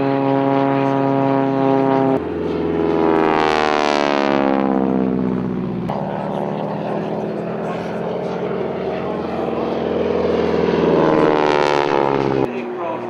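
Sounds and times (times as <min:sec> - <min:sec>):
propeller aircraft engines droning: 0:00.0 - 0:13.0
propeller plane flying past: 0:00.0 - 0:13.0.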